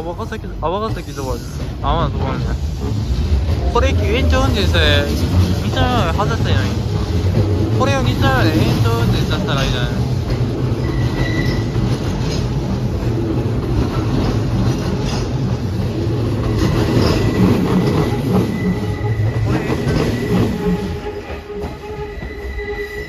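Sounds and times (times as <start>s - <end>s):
electric train passing: 0.0s - 23.0s
wheels clacking over rail joints: 0.2s - 21.8s
thin wheel squeal: 10.8s - 11.7s.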